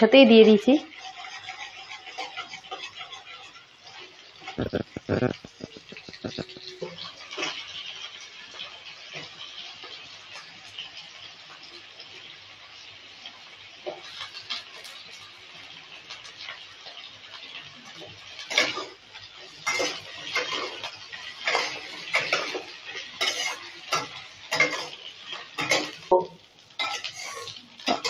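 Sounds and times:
vegetables sizzling in hot oil: 0:00.0 - 0:28.0
metal spatula scraping a pan: 0:00.9 - 0:04.6, 0:17.9 - 0:26.1, 0:26.8 - 0:28.0.

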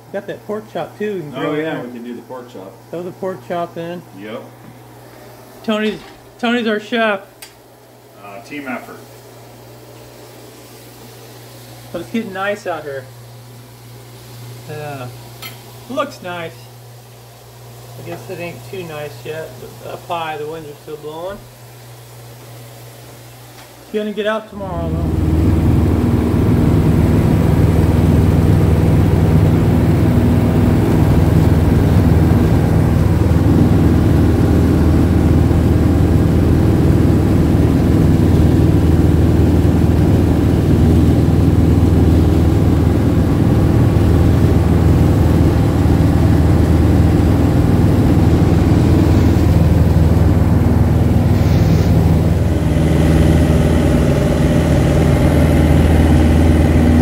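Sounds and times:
propeller plane engine droning: 0:24.5 - 0:57.0.

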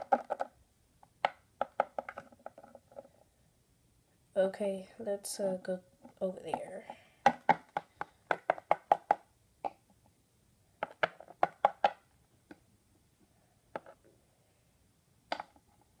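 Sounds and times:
plastic toys tapping on wooden table: 0:00.0 - 0:00.5, 0:01.2 - 0:03.1, 0:06.5 - 0:09.8, 0:10.8 - 0:12.6, 0:15.3 - 0:15.6.

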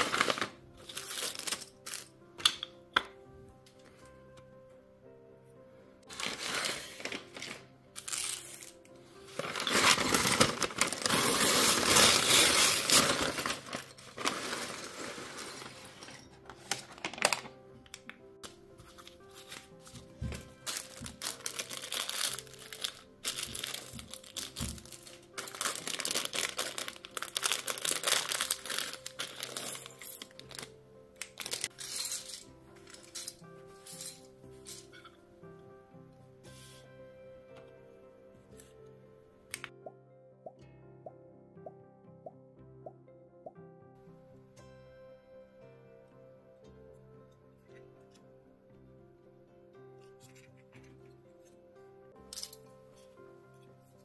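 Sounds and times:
paper bag crinkling and tearing: 0:00.0 - 0:02.1, 0:06.1 - 0:17.6, 0:20.4 - 0:31.8
quiet background music: 0:00.0 - 0:54.0
plastic pieces clicking and rattling: 0:20.7 - 0:33.4.

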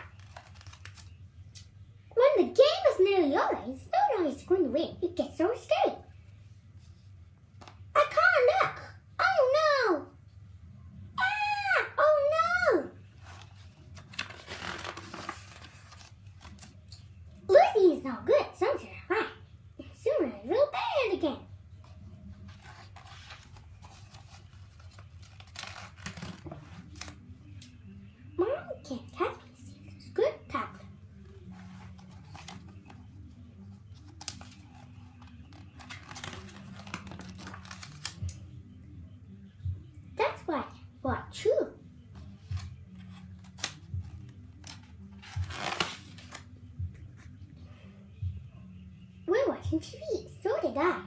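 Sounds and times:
paper page rustling: 0:00.0 - 0:01.2, 0:13.1 - 0:16.9, 0:21.8 - 0:27.3, 0:31.2 - 0:38.3, 0:42.2 - 0:46.5.

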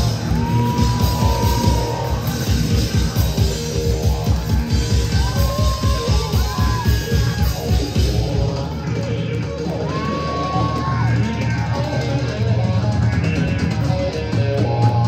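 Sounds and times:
fast driving drum beat: 0:00.0 - 0:15.0
rock band playing live: 0:00.0 - 0:15.0.

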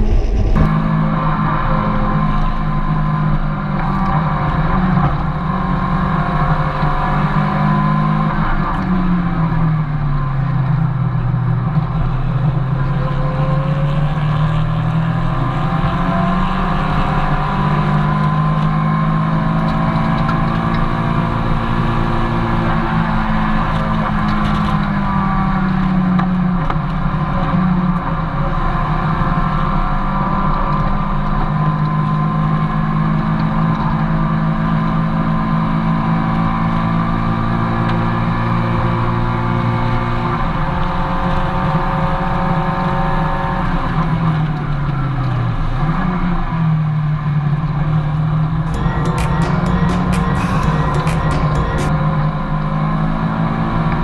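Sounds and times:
car engine revving: 0:00.0 - 0:09.6, 0:48.2 - 0:54.0.

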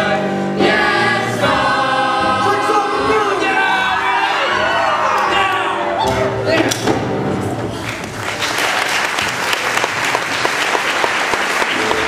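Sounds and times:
audience applauding: 0:07.7 - 0:12.0.

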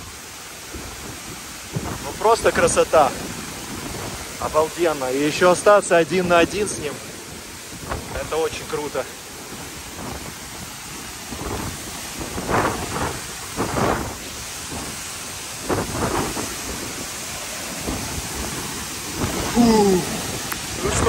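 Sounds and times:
waterfall crashing: 0:00.0 - 0:21.0
wind gusts on microphone: 0:00.0 - 0:21.0.

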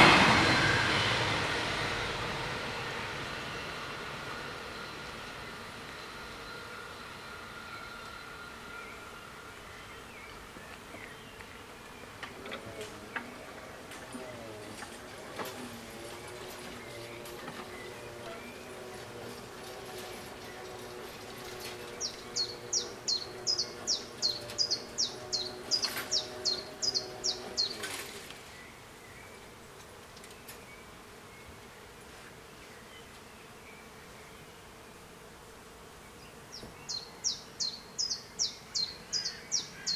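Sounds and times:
barrier motor humming: 0:00.0 - 0:11.3, 0:12.1 - 0:28.6
bird chirping: 0:20.0 - 0:29.4, 0:36.1 - 0:39.9.

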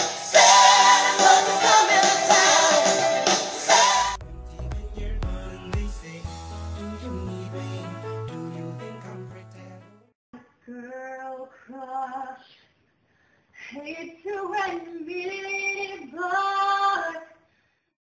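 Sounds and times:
background music: 0:00.0 - 0:10.1
girl singing: 0:10.5 - 0:12.4, 0:13.7 - 0:17.4.

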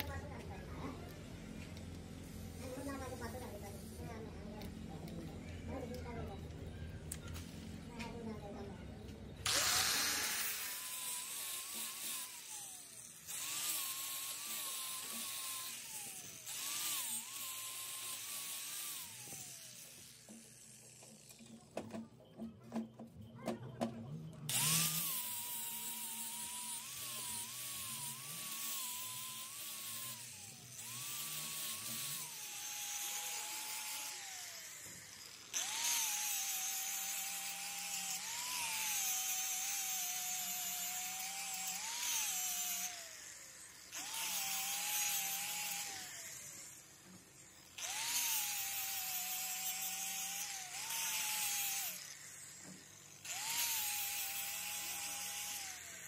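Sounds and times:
angle grinder grinding steel: 0:09.3 - 0:21.8, 0:24.5 - 0:56.0.

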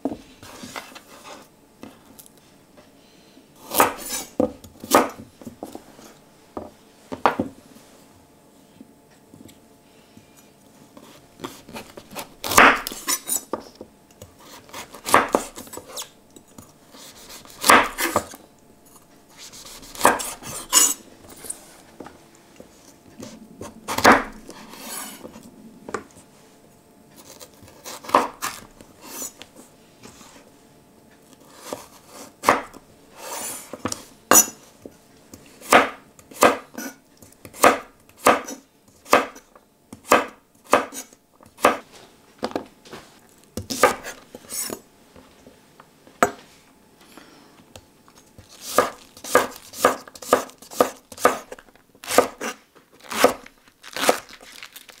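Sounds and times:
knife cutting carrot on board: 0:16.9 - 0:18.4, 0:19.4 - 0:21.0, 0:35.6 - 0:39.4, 0:48.4 - 0:53.4.

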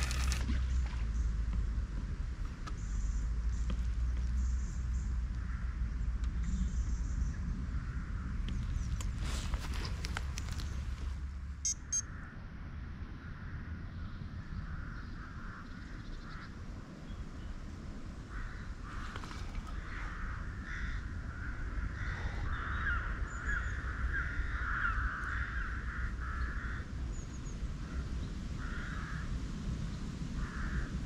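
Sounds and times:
steady low rumble: 0:00.0 - 0:31.0
birds calling: 0:18.3 - 0:29.3.

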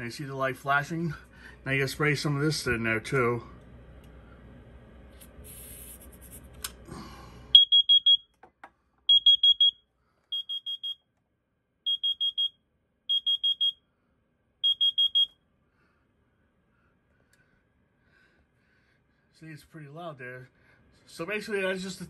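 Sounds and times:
high-pitched alarm beeps: 0:07.6 - 0:08.3, 0:09.1 - 0:11.0, 0:11.9 - 0:13.8, 0:14.6 - 0:15.4.

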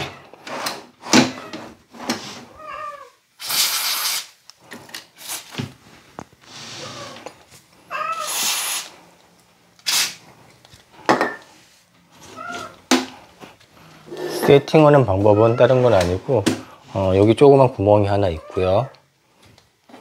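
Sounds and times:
cat meowing: 0:02.6 - 0:03.2, 0:06.8 - 0:07.3, 0:07.9 - 0:08.6, 0:12.2 - 0:12.8, 0:15.2 - 0:15.9
cat hissing: 0:06.5 - 0:07.3, 0:07.9 - 0:09.1.

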